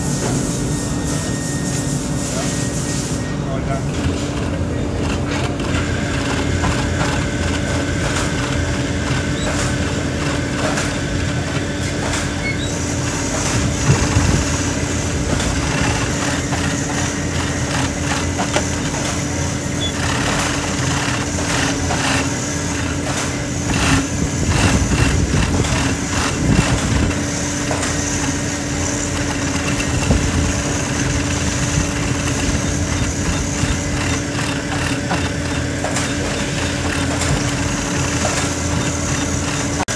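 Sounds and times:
sewing machine motor hum: 3.8 - 39.9
rapid needle clatter: 15.4 - 27.1.

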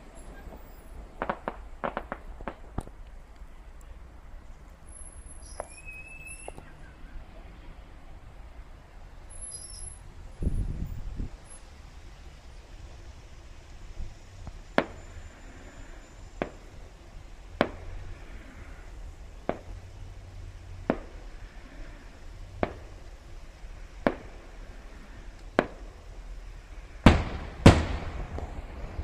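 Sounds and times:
firework shells bursting: 0.0 - 3.2, 4.9 - 6.6, 14.4 - 20.0, 20.8 - 26.4, 27.0 - 29.0.

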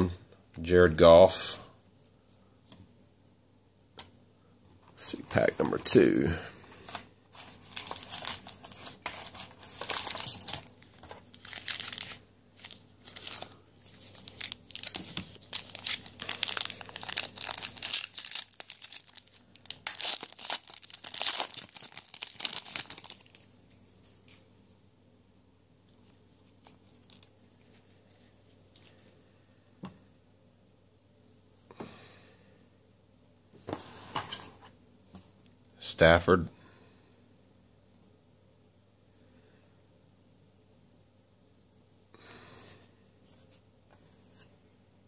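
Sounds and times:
wrapper crinkling and tearing: 7.4 - 23.5.

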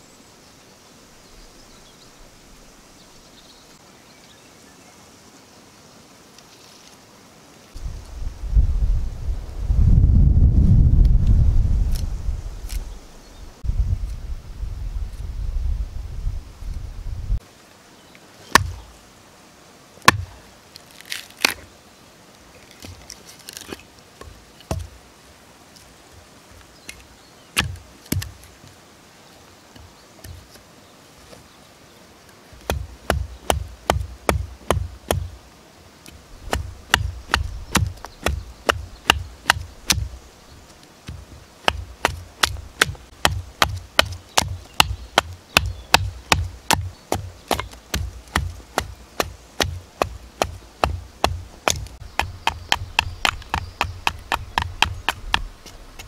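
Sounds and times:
hatchet chopping wood: 18.5 - 18.8, 20.0 - 20.4, 24.7 - 25.0, 27.6 - 28.4, 32.6 - 35.4, 36.4 - 40.2, 41.1 - 56.0.

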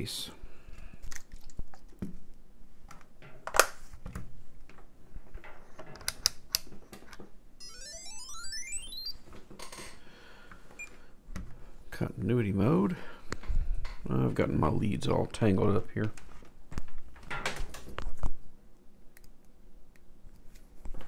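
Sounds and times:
rising stepped electronic tone: 7.6 - 9.2.

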